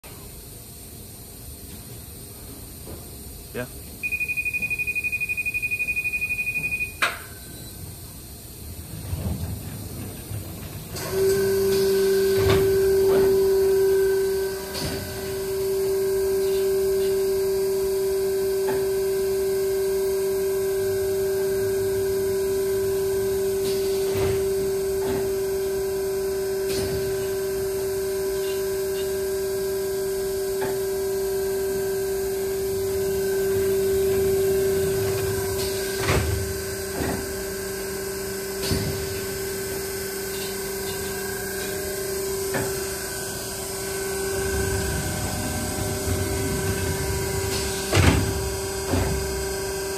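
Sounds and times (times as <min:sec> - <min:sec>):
machine electrical hum: 0:00.0 - 0:49.9.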